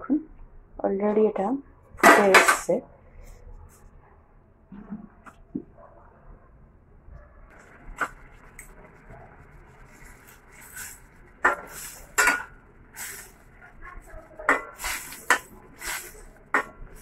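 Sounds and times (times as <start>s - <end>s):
sauce boiling: 7.5s - 17.0s
spoon scraping pan: 9.7s - 17.0s
spoon clanking against pan: 11.4s - 12.6s, 14.4s - 16.8s.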